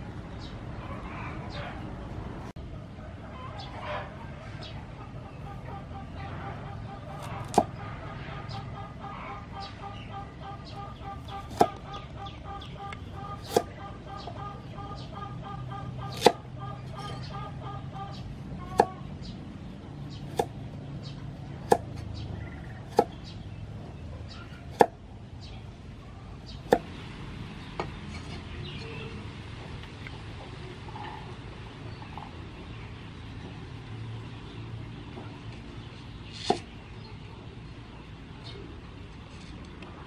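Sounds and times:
cleaver chopping on wooden block: 7.2 - 7.8, 11.2 - 11.8, 13.4 - 13.7, 16.1 - 16.4, 18.7 - 19.0, 20.2 - 20.6, 21.6 - 22.1, 22.9 - 23.2, 24.7 - 25.0, 26.7 - 26.9.

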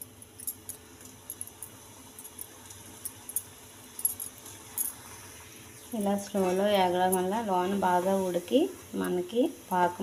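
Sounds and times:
dough frying in hot oil: 0.0 - 10.0.

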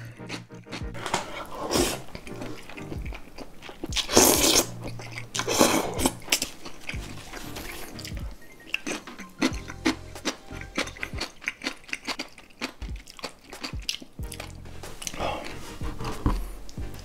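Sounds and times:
person slurping noodles: 0.0 - 2.2, 4.0 - 6.4
crunchy chewing: 0.0 - 17.0.

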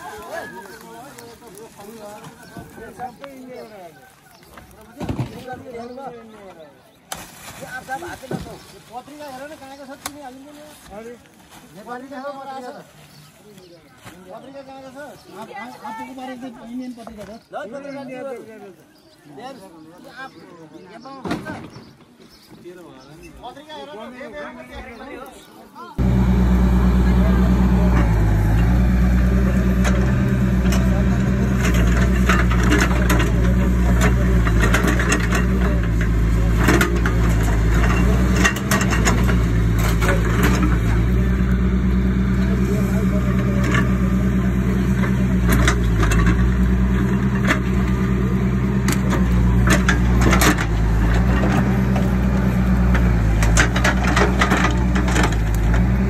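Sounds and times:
vehicle engine idling: 26.0 - 56.0.

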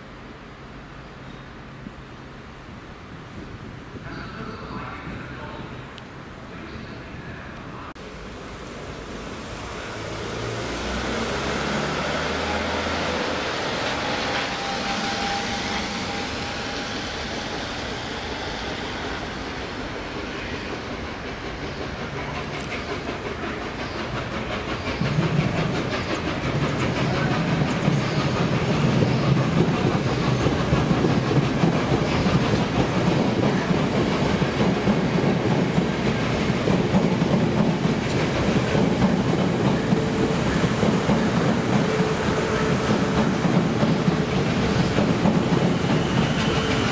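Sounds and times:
steam locomotive rumble: 1.9 - 46.9
train wheels clattering over rail joints: 20.0 - 46.9.

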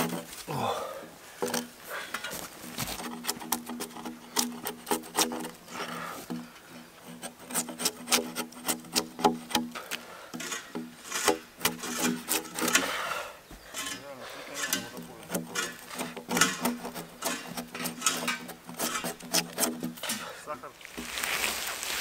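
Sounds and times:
bark scraped off log: 7.0 - 9.7, 14.6 - 20.3.

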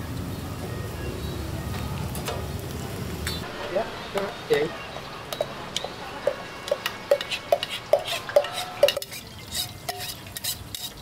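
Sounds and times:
metal utensil clinking on bowl: 6.7 - 11.0.

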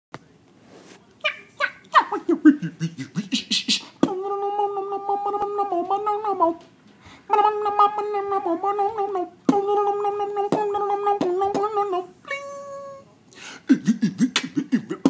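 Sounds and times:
person beatboxing: 2.0 - 6.6, 7.3 - 12.0, 13.6 - 15.0.

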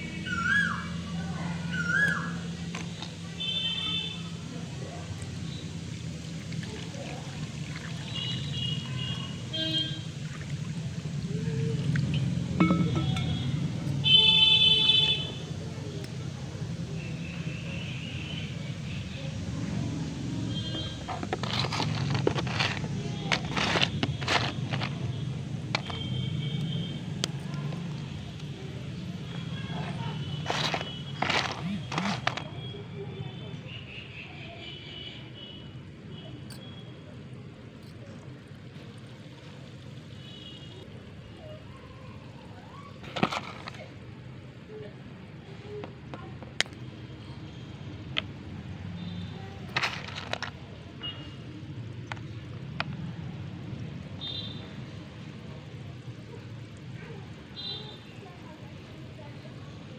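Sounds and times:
dry clay chunks crackling: 1.7 - 10.0, 19.7 - 32.9, 43.0 - 44.1, 48.0 - 55.5
clay chunks clicking together: 21.0 - 28.5, 29.8 - 32.5, 43.0 - 43.9, 49.7 - 50.6.

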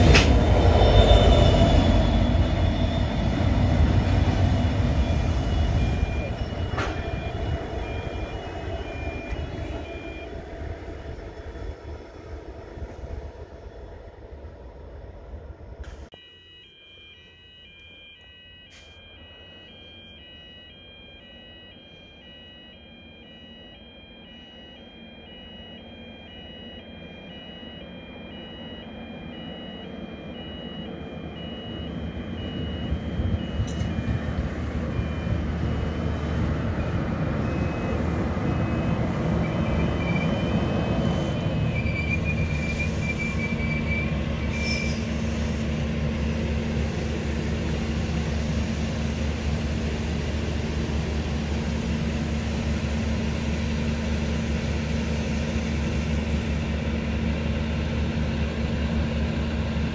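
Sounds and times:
train rumble: 0.0 - 16.2, 25.3 - 59.9
wheels rumbling on rail: 0.0 - 16.2, 26.9 - 59.9
low engine drone: 0.0 - 59.9
two-tone crossing bells: 16.1 - 35.4
faint wheel squeal: 39.6 - 45.7.

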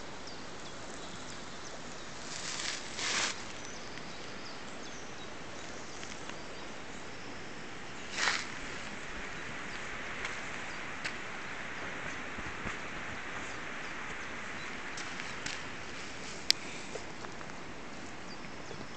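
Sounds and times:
steady background hiss: 0.0 - 18.9
faint ticks: 16.4 - 17.6.

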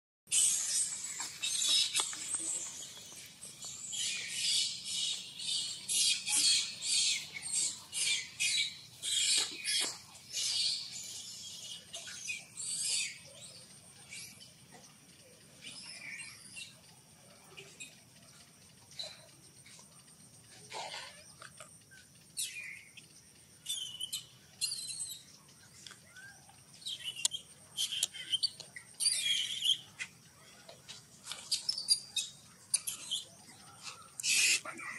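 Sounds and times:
baby monkey screeching: 0.3 - 2.2, 4.0 - 13.2, 34.1 - 34.9
faint bird chirps: 0.3 - 34.9
high insect hum: 0.3 - 34.9.

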